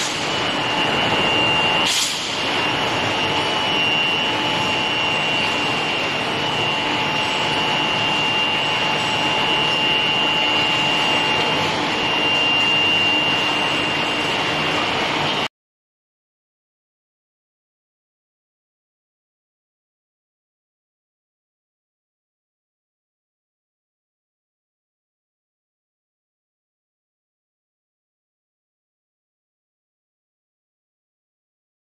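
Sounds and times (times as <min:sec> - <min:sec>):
furnace high-pitched whine: 0:00.0 - 0:15.5
loud machine noise: 0:00.0 - 0:15.5.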